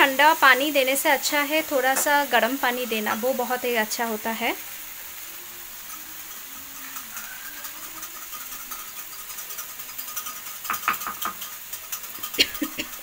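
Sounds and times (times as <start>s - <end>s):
curry sizzling in a pan: 0.0s - 13.0s
metal spoon clinking in a bowl: 5.9s - 13.0s.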